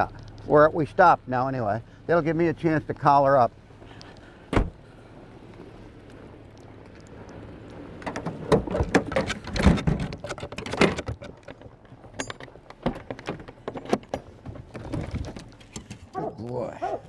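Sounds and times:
gear clicking and rattling: 6.5 - 17.0.

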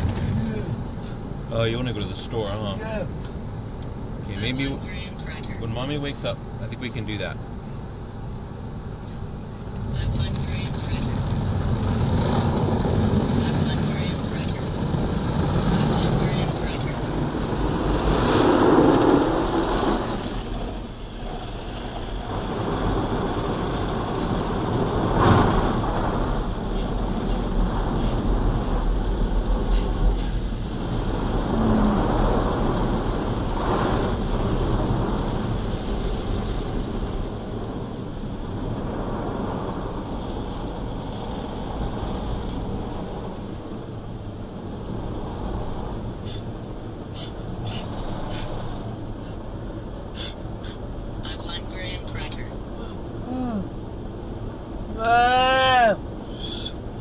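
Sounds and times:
car wash water spraying: 7.6 - 57.0
short sharp hisses: 56.3 - 56.8.

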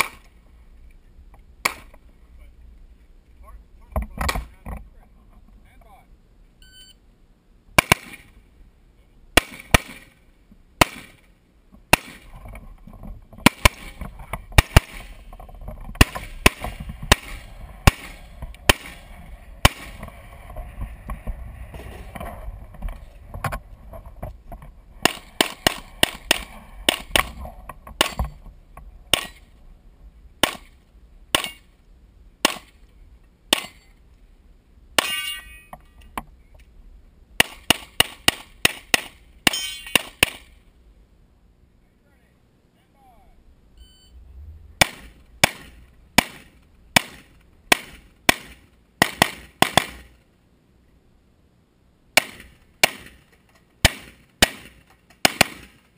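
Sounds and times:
electronic start beep: 6.6 - 7.0, 43.8 - 44.2
rifle gunshots: 7.8 - 8.3, 9.4 - 10.1, 13.4 - 14.0, 14.6 - 15.2, 16.0 - 20.0, 25.0 - 27.4, 30.4 - 31.6, 44.8 - 50.1, 53.8 - 55.8.

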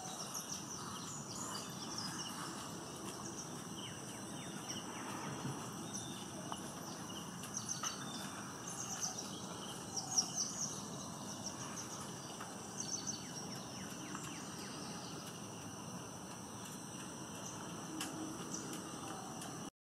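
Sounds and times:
bird twittering: 0.0 - 15.3
insects droning: 0.0 - 19.7.

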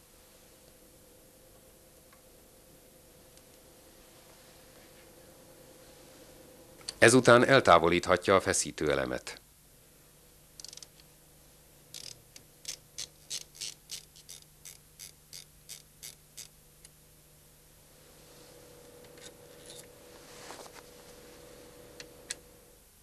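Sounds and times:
faint hum: 0.0 - 23.0
ratchet wrench clicking: 10.6 - 10.9, 11.9 - 16.5.

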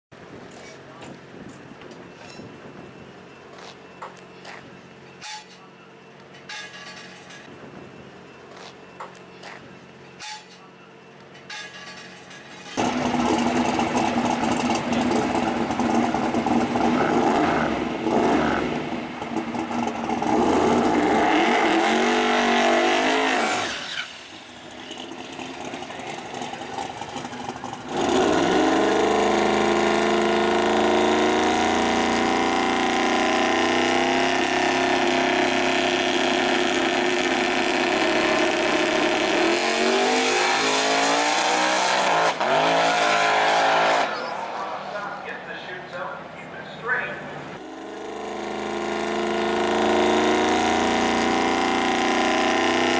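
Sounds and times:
car engine revving loud: 12.8 - 24.0, 25.3 - 45.2, 47.6 - 52.9.

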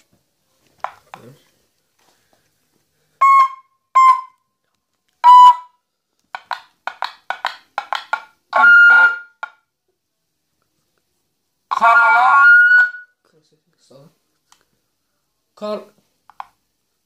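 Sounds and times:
siren horn beeps: 3.2 - 4.4, 5.2 - 5.8, 8.5 - 9.5, 11.7 - 13.2
siren chirps: 8.5 - 9.4, 11.7 - 13.2.

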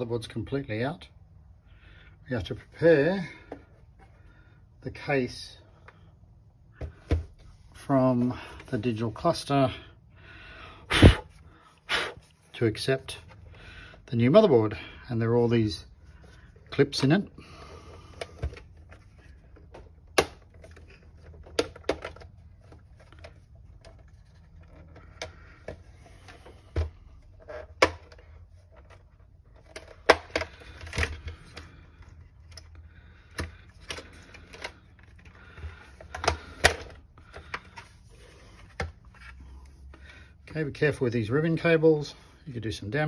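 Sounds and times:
plastic case rustling: 17.9 - 40.1.

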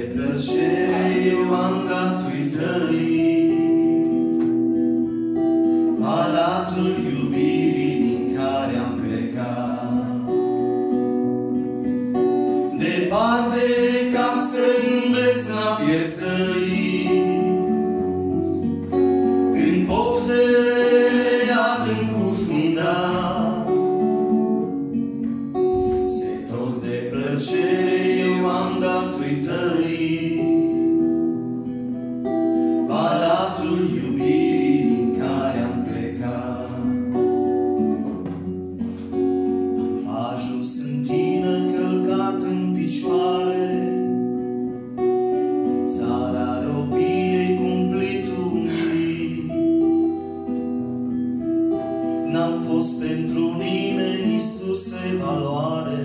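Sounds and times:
men singing a hymn: 0.0 - 4.3, 5.8 - 10.3, 12.6 - 17.9, 19.3 - 24.1, 25.9 - 31.1, 32.6 - 37.1, 40.1 - 43.9, 45.9 - 49.6, 52.2 - 56.0
acoustic guitar strumming: 0.0 - 56.0.

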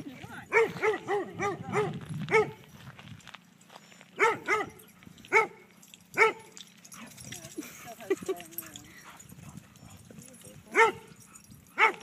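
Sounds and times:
dog barking: 0.5 - 2.7, 4.2 - 6.5, 10.7 - 11.1, 11.8 - 12.0.

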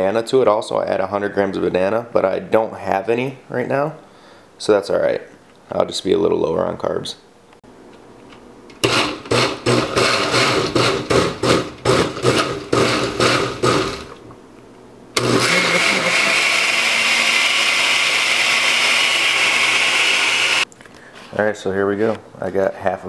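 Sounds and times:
blender pulsing and running: 8.8 - 14.1, 15.2 - 20.6.

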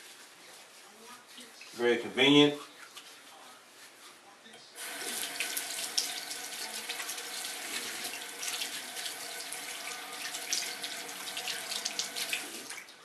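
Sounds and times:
faucet turned on: 4.8 - 12.9
hands rinsed under water: 4.8 - 12.9
water running into sink: 4.8 - 13.0.

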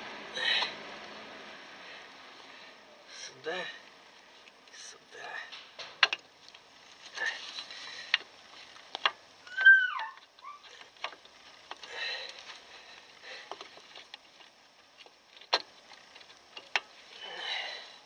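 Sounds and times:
short falling squeak: 9.5 - 10.7.

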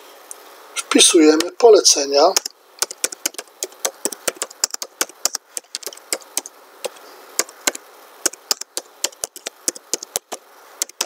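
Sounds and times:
keyboard typing: 2.4 - 11.0.

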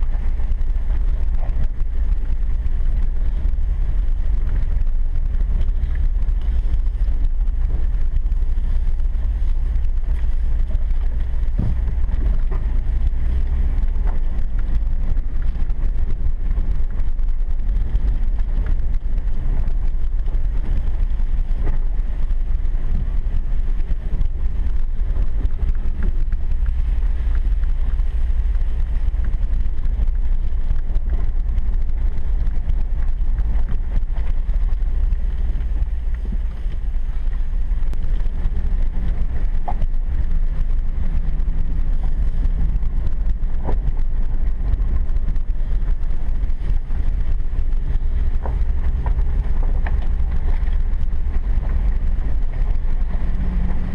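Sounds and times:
engine and road rumble: 0.0 - 53.9.

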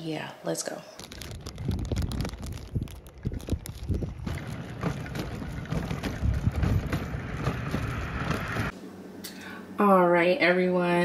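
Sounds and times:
wind buffeting microphone: 1.0 - 8.7.

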